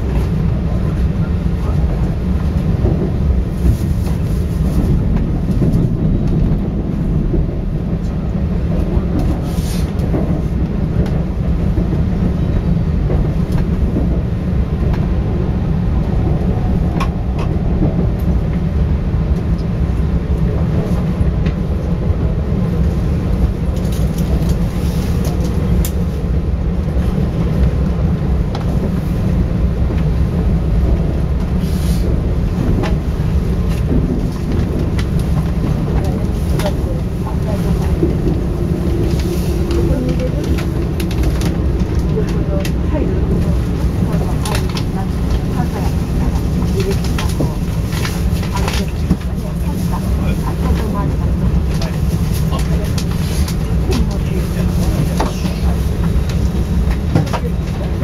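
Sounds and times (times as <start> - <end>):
train wheels rumbling: 0.0 - 58.0.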